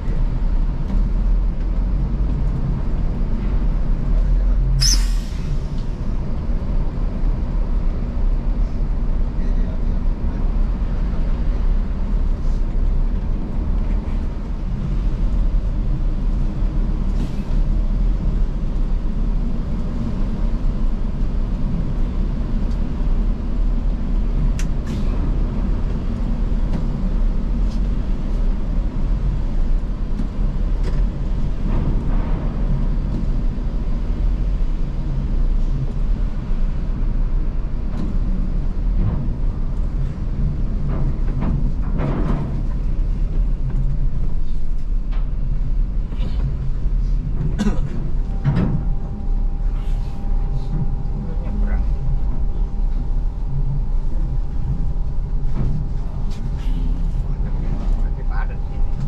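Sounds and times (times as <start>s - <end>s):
coach engine droning: 0.0s - 59.0s
air brakes hissing: 4.8s - 5.8s, 49.6s - 50.8s, 56.5s - 57.2s.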